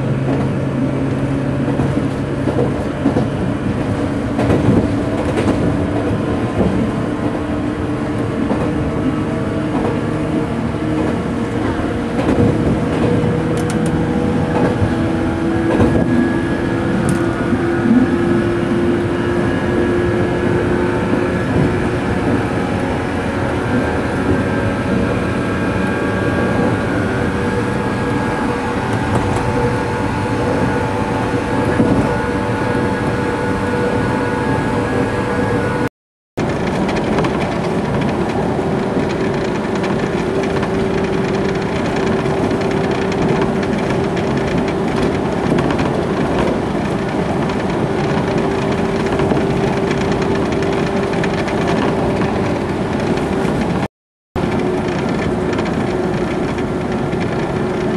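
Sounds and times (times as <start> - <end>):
train wheels rumbling on rail: 0.0 - 57.9.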